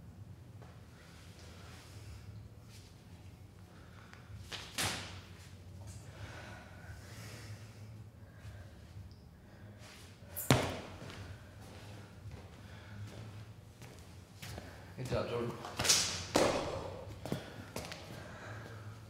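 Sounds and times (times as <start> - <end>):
person landing on floor thud: 10.4 - 11.2, 15.8 - 17.0.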